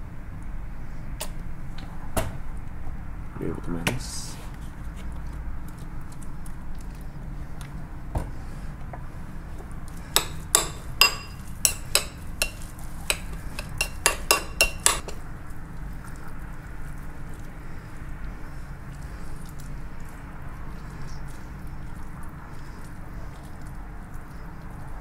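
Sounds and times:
metal spoon clinking in ceramic bowl: 0:10.2 - 0:15.2.

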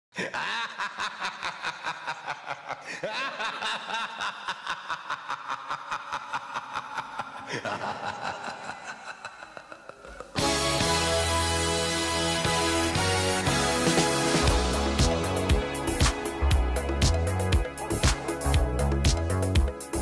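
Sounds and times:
spooky cackling laugh: 0:00.2 - 0:10.4.

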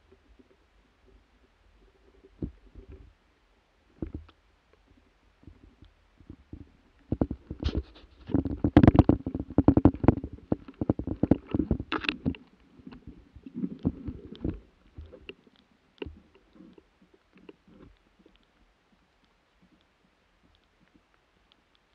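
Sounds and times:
branches scraping against camera: 0:07.2 - 0:15.3.

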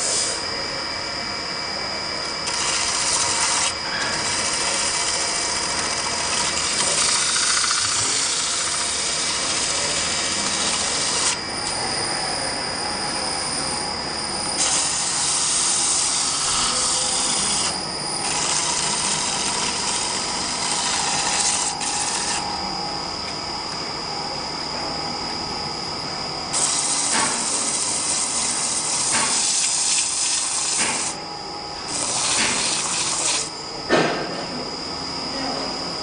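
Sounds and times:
lathe cutter hissing on wood: 0:00.0 - 0:00.5, 0:02.2 - 0:22.9, 0:26.5 - 0:33.6
lathe high whine: 0:00.0 - 0:36.0.

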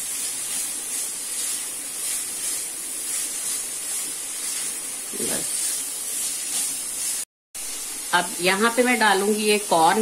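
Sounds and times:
vegetables sizzling in oil: 0:00.0 - 0:10.0
wooden spatula stirring: 0:00.1 - 0:07.2.

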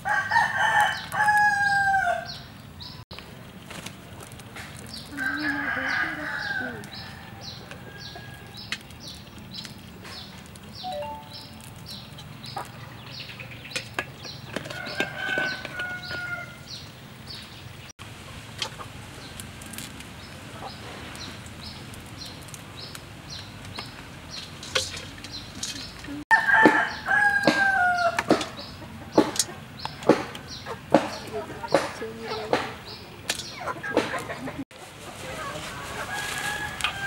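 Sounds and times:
rooster crowing: 0:00.0 - 0:02.4, 0:05.1 - 0:08.6, 0:14.7 - 0:16.8, 0:26.3 - 0:28.2, 0:35.9 - 0:37.0
steady high chirping: 0:10.8 - 0:12.4.

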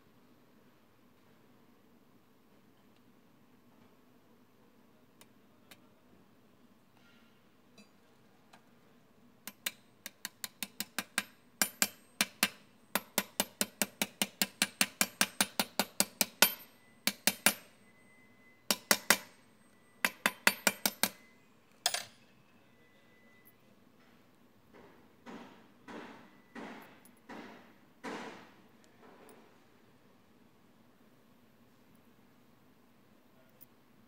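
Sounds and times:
hammer tapping metal drift: 0:09.5 - 0:17.7, 0:18.7 - 0:19.4, 0:20.0 - 0:21.3.

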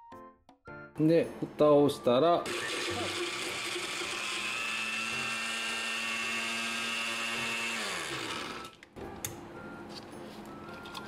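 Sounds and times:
food processor motor whining: 0:02.4 - 0:08.8.

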